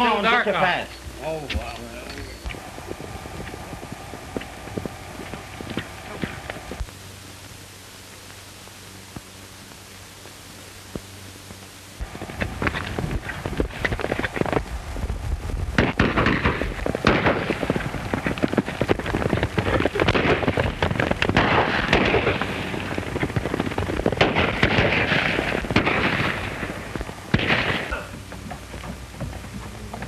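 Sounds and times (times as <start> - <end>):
galloping horse hooves: 0.0 - 30.0
soundtrack hiss and crackle: 0.0 - 30.0
rapid gunshots: 15.8 - 28.1.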